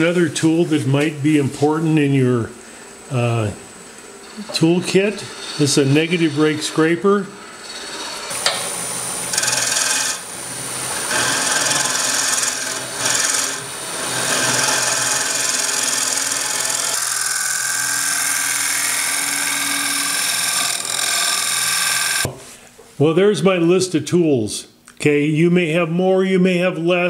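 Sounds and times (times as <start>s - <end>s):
low hum of lathe: 0.0s - 22.3s
scraper cutting wood on lathe: 4.2s - 8.6s, 9.2s - 22.3s.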